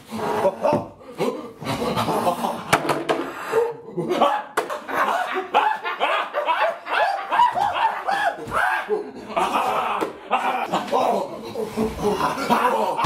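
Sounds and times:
people yelling: 0:04.2 - 0:10.9.

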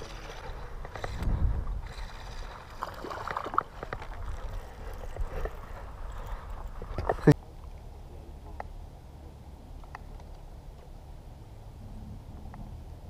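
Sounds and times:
wind rumbling on microphone: 0:00.0 - 0:07.4.

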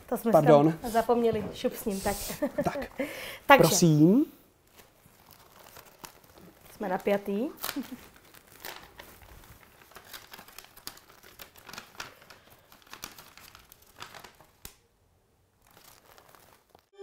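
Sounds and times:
paper crinkling: 0:04.6 - 0:14.8, 0:15.6 - 0:16.9.

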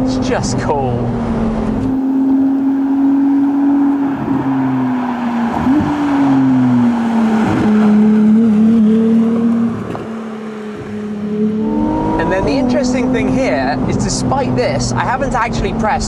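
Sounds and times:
car engine running hard: 0:00.0 - 0:16.0
road noise: 0:00.0 - 0:16.0
wind noise: 0:03.4 - 0:13.2.

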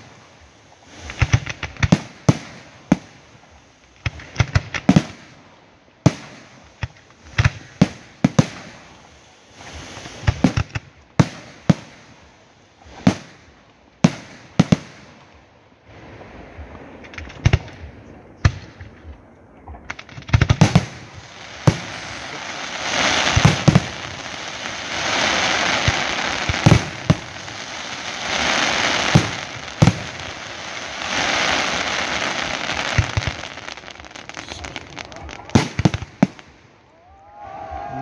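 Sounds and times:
firework crackling: 0:00.0 - 0:38.0.

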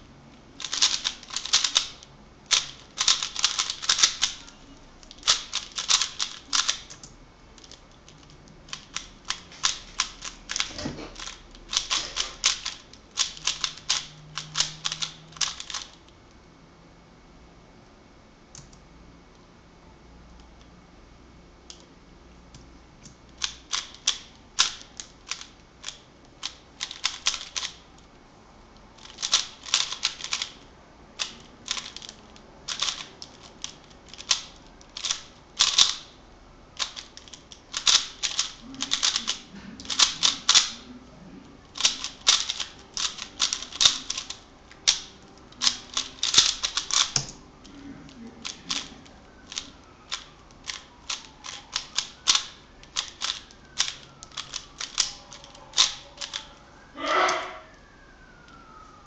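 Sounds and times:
plastic puzzle cube clacking: 0:00.6 - 0:07.0, 0:07.6 - 0:16.0, 0:23.4 - 0:27.8, 0:29.0 - 0:30.6, 0:31.2 - 0:36.1, 0:36.8 - 0:40.9, 0:41.7 - 0:56.6.

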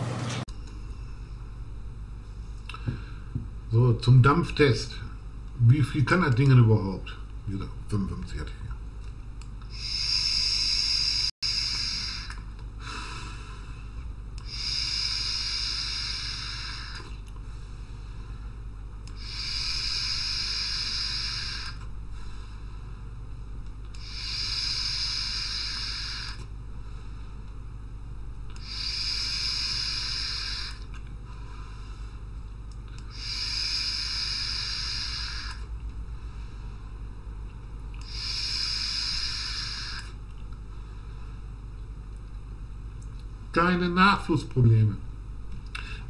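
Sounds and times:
vape hissing puffs: 0:09.7 - 0:12.4, 0:14.4 - 0:17.1, 0:19.1 - 0:21.8, 0:24.0 - 0:26.4, 0:28.6 - 0:30.9, 0:33.0 - 0:35.7, 0:38.0 - 0:40.2.

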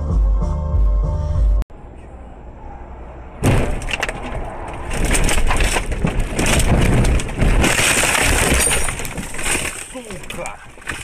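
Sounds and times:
branches scraping car body: 0:03.4 - 0:11.0.

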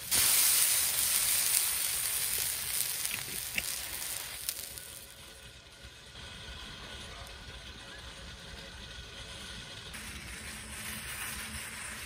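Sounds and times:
liquid sizzling on a hot griddle: 0:00.0 - 0:05.5, 0:09.9 - 0:12.0
small pops: 0:00.1 - 0:04.9.

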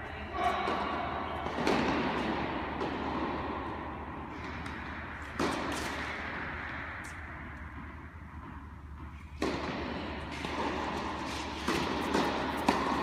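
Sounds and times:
steady hall hum: 0:00.0 - 0:13.0
tennis ball knocks echoing: 0:09.4 - 0:13.0.

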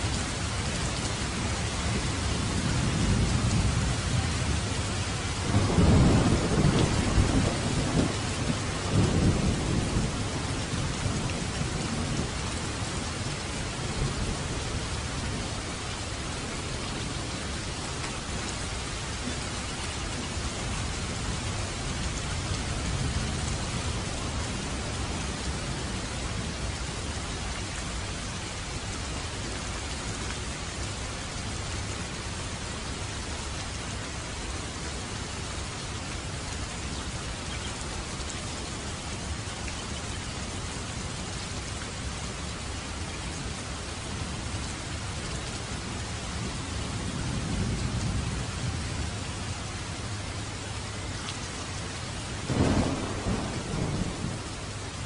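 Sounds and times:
heavy rain on pavement: 0:00.0 - 0:55.0
distant thunder rumbles: 0:01.8 - 0:15.6, 0:52.4 - 0:55.0.

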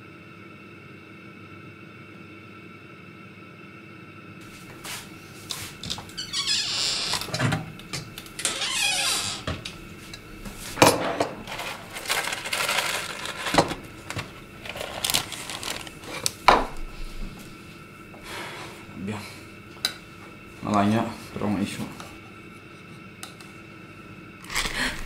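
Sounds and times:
rustling: 0:14.6 - 0:16.3.

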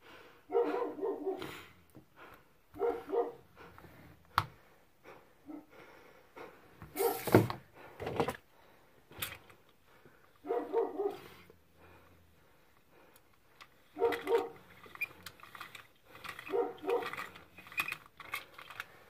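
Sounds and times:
dog barking: 0:00.5 - 0:01.5, 0:02.8 - 0:03.4, 0:05.4 - 0:05.7, 0:06.9 - 0:07.3, 0:10.4 - 0:11.4, 0:13.9 - 0:14.6, 0:16.4 - 0:17.2.

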